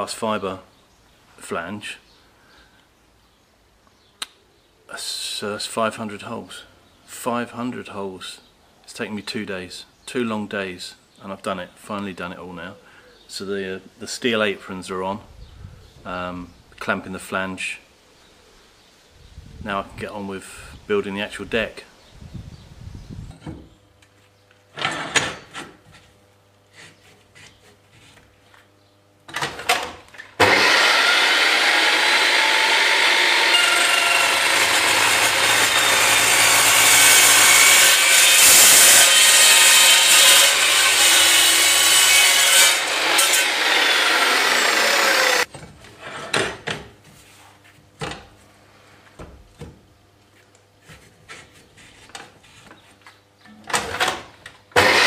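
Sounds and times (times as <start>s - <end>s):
chop saw cutting steel: 30.4s - 45.5s, 54.8s - 55.0s.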